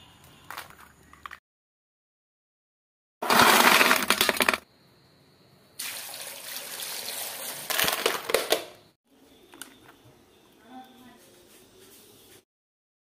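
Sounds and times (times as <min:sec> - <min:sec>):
water pouring onto clams: 0:05.8 - 0:07.8.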